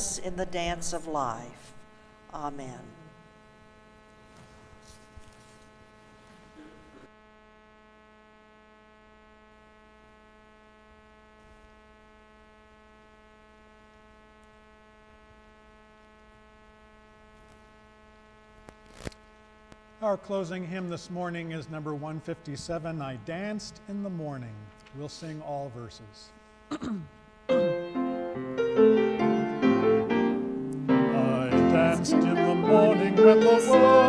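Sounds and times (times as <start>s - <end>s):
electrical mains hum: 0.0s - 34.0s
faint rustles: 4.2s - 7.1s.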